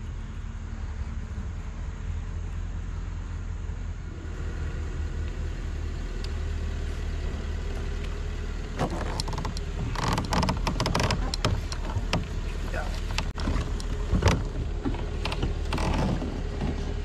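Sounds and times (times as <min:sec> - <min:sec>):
low rumble: 0:00.0 - 0:17.0
knocks and rattles in plastic kayak: 0:08.8 - 0:17.0.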